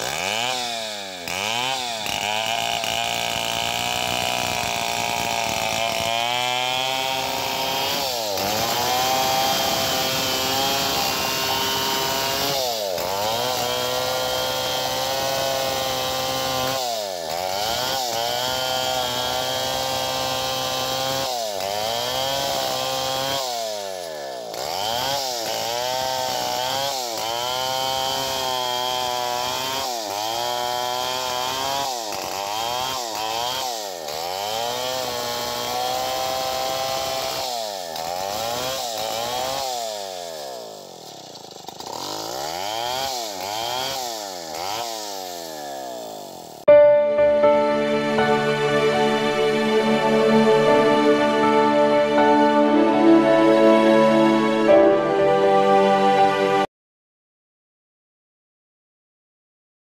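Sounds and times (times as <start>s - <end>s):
chainsaw cutting log: 0.0s - 46.7s.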